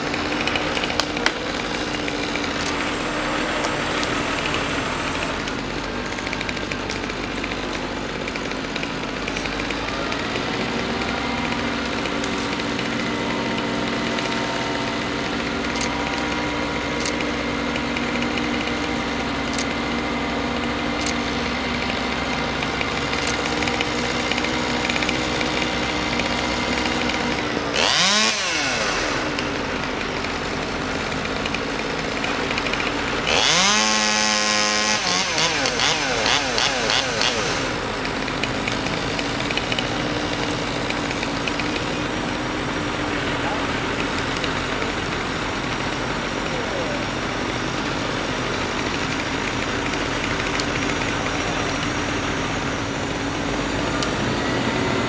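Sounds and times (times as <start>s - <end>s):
chainsaw revving and cutting: 0.0s - 55.0s
truck engine running: 0.0s - 55.0s.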